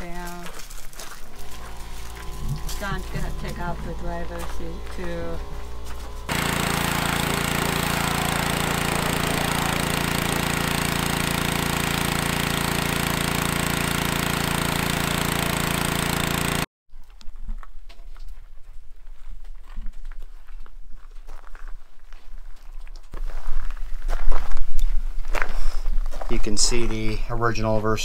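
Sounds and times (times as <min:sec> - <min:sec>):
pressure washer spraying: 0:01.3 - 0:16.7.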